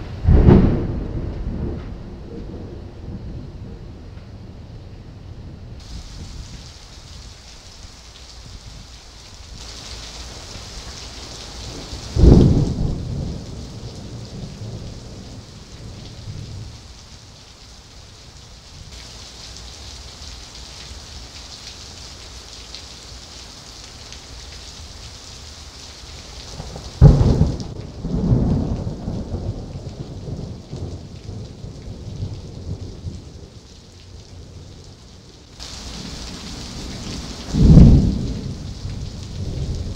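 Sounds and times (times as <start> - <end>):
thunder crack and rumble: 0.0 - 6.6, 11.6 - 16.7, 26.6 - 33.5, 35.8 - 39.9
heavy rain hissing: 5.4 - 39.9.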